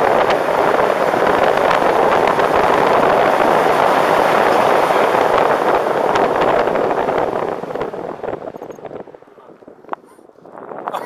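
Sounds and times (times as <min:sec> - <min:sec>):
wind rushing over microphone: 0:00.0 - 0:11.0.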